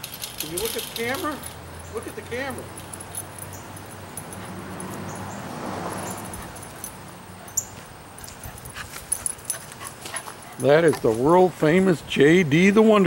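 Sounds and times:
light clicks and clinks: 0.0s - 11.4s
small dog moving about: 5.9s - 11.3s.

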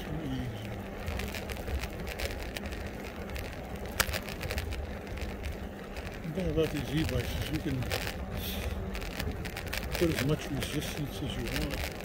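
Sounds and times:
light rattles: 0.0s - 12.0s
wind and road noise: 0.0s - 12.0s.

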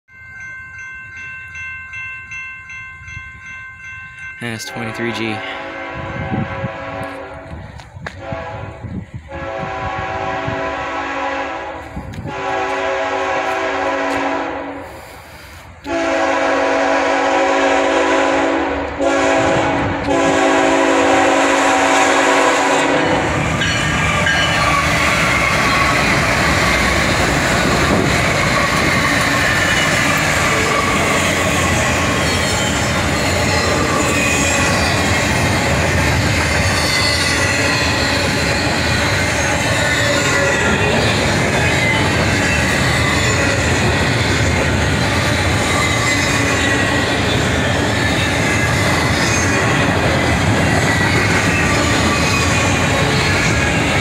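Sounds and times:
rumble of wheels on rail: 0.2s - 54.0s
train air horn blasts: 4.8s - 26.0s
locomotives passing: 18.8s - 54.0s
wheel squeal: 45.2s - 49.7s.

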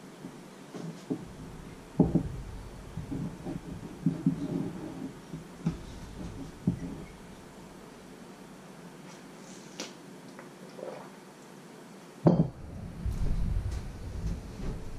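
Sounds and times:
knocks on wooden counter: 1.1s - 4.8s
low rumbling handling noise: 1.1s - 8.8s, 12.4s - 14.9s.

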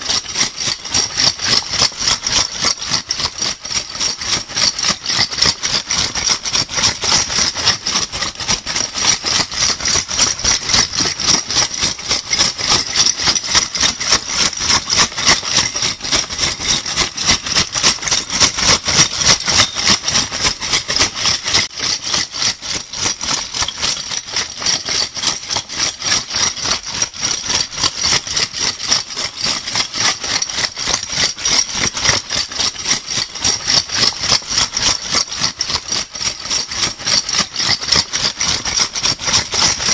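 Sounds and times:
bottle caps rattling: 12.8s - 21.7s.

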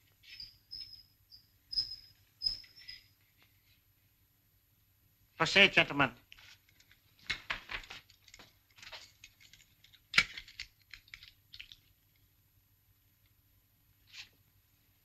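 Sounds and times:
small clicks and rustles: 6.3s - 12.4s.

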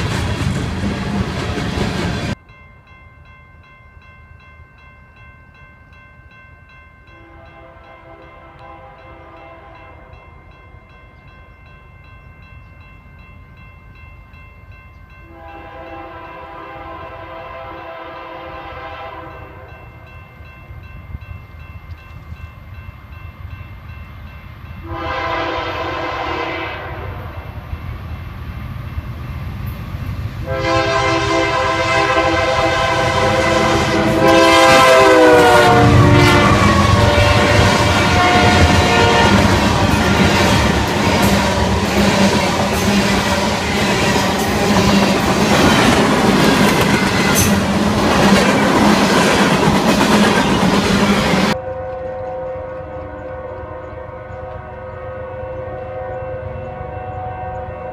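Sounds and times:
train engine and wheels rumbling: 0.0s - 57.9s
train air horn blasts: 7.2s - 10.2s, 15.2s - 19.8s, 24.8s - 27.6s, 30.4s - 42.2s, 51.2s - 57.9s.

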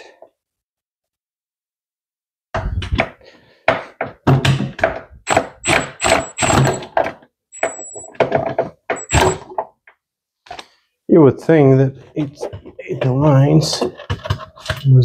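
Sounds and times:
impact driver bursts: 5.3s - 6.9s, 9.0s - 9.4s.

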